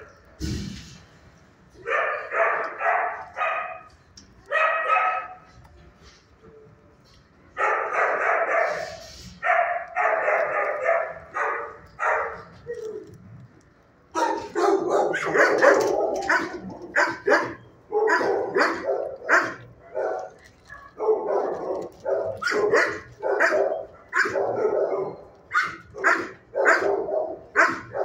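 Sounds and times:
dog barking: 0:01.8 - 0:03.9, 0:04.5 - 0:05.5, 0:07.6 - 0:12.6, 0:14.1 - 0:28.0.

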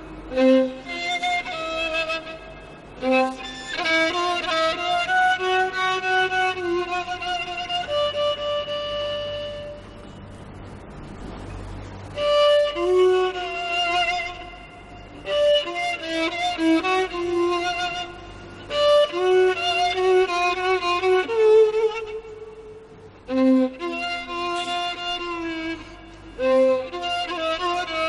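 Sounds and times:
violin melody with vibrato: 0:00.0 - 0:10.2, 0:12.0 - 0:28.0.

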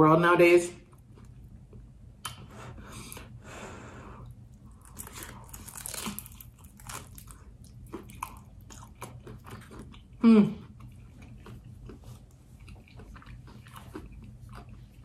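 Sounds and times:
crunching bites and chewing: 0:04.2 - 0:15.0.

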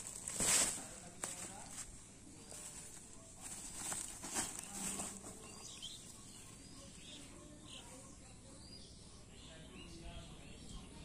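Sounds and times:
plastic sacks rustling: 0:00.0 - 0:06.0.

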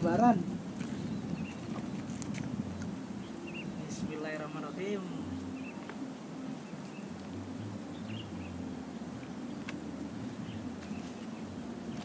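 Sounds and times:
steady low hum: 0:00.0 - 0:12.0
faint bird chirps: 0:03.2 - 0:04.0, 0:05.0 - 0:05.9.

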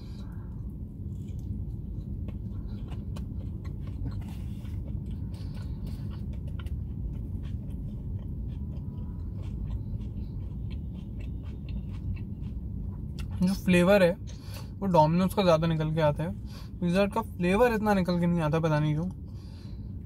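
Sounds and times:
person chewing crunchy food: 0:00.0 - 0:13.6
steady low rumble: 0:00.0 - 0:20.0.

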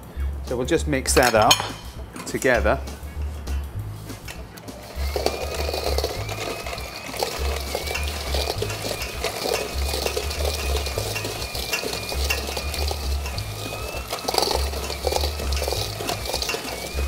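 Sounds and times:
beaters scraping metal bowl: 0:00.5 - 0:17.0
hand mixer motor whine: 0:04.6 - 0:17.0.

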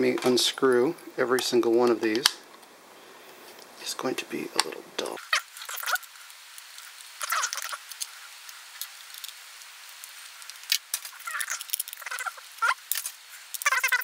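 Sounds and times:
high squeaky chirps: 0:05.2 - 0:06.1, 0:07.2 - 0:07.9, 0:11.1 - 0:12.9, 0:13.5 - 0:14.0.

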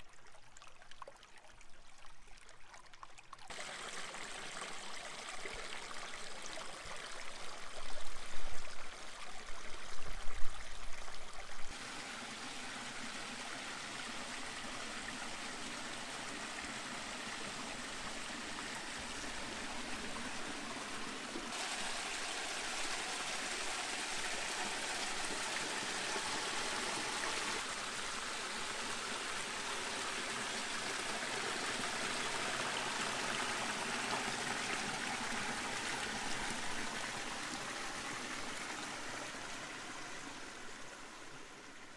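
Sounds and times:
stream trickling over boulders: 0:00.0 - 0:41.9.

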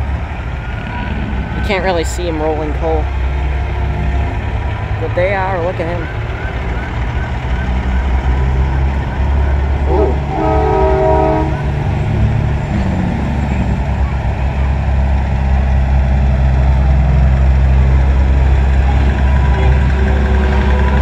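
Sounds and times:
diesel truck engines passing: 0:00.0 - 0:21.0
truck air horn chord: 0:09.9 - 0:11.6.

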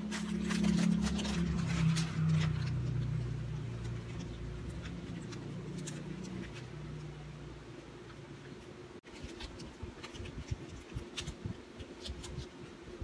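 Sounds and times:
plastic packaging crackling: 0:00.0 - 0:07.2
low droning hum: 0:00.0 - 0:11.6.

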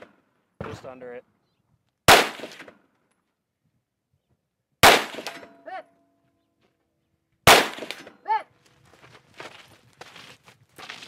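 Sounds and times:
pistol shots with echo: 0:02.1 - 0:02.8, 0:04.8 - 0:05.6, 0:07.4 - 0:08.2
bullet ringing steel target: 0:04.8 - 0:06.2.

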